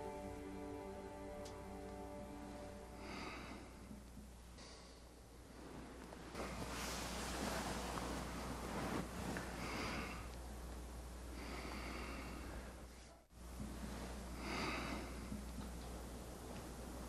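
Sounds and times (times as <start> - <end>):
low room hum: 0.0 - 17.0
heavy breathing through nose: 2.9 - 4.0, 6.5 - 10.4, 11.3 - 12.9, 14.1 - 15.4.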